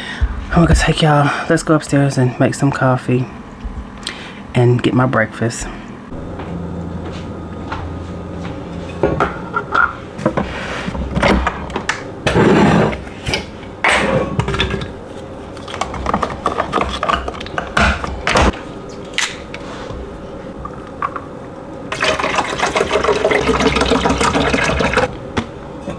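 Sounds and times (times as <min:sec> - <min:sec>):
low hum: 0:03.0 - 0:22.0.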